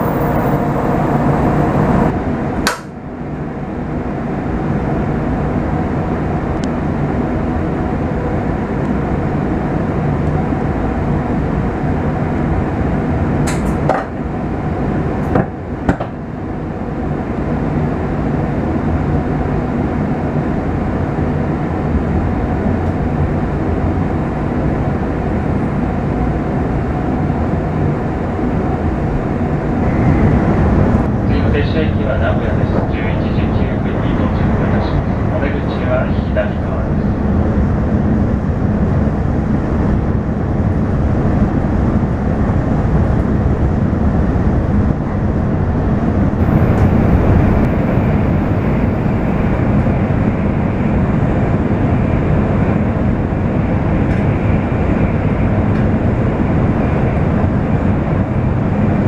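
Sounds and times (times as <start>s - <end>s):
train cabin rumble: 0.0s - 2.9s, 28.2s - 58.9s.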